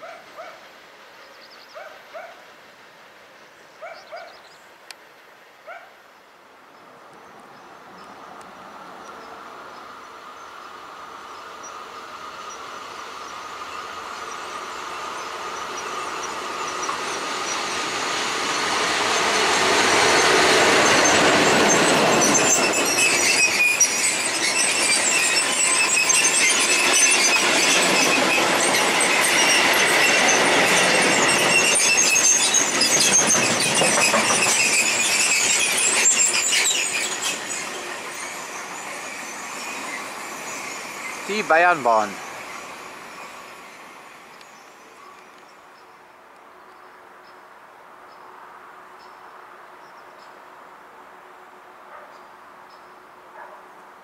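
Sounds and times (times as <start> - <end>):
freight train passing: 6.6 - 54.0
train wheels squealing: 11.2 - 45.6
wheels clattering over rail joints: 15.1 - 41.2.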